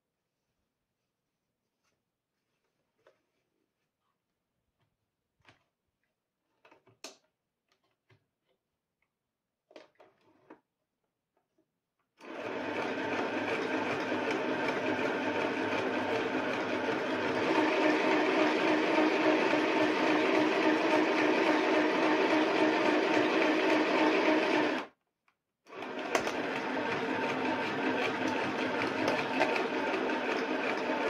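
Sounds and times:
sewing machine stitching: 0:12.2 - 0:24.9, 0:25.7 - 0:31.0.

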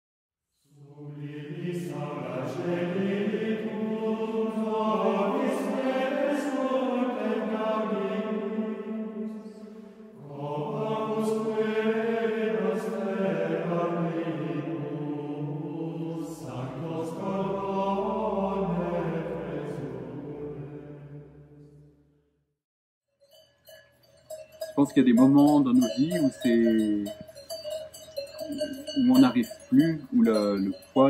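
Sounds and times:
men singing plainchant: 0:00.8 - 0:09.6, 0:10.2 - 0:21.0.

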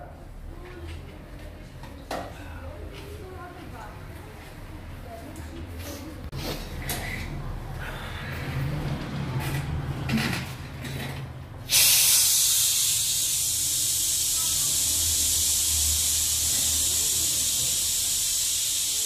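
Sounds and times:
hiss of rushing air: 0:11.7 - 0:19.0.

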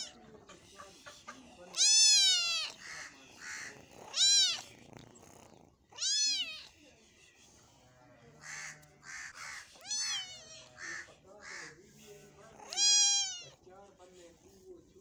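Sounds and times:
kitten meowing: 0:01.7 - 0:02.9, 0:04.1 - 0:04.7, 0:05.9 - 0:06.8, 0:09.8 - 0:10.8, 0:12.6 - 0:13.6.

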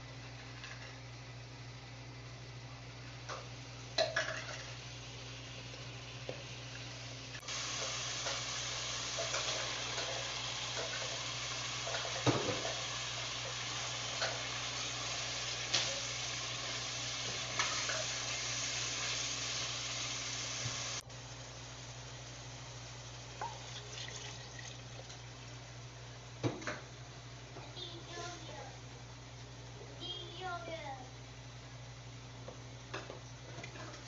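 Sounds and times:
food sizzling in a pot: 0:02.8 - 0:29.6.

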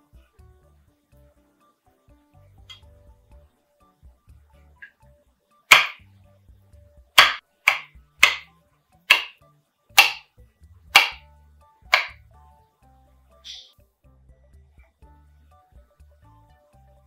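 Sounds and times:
knife chopping on wooden board: 0:05.7 - 0:06.0, 0:07.2 - 0:08.5, 0:09.1 - 0:09.4, 0:10.0 - 0:10.3, 0:10.9 - 0:11.2, 0:11.9 - 0:12.2.

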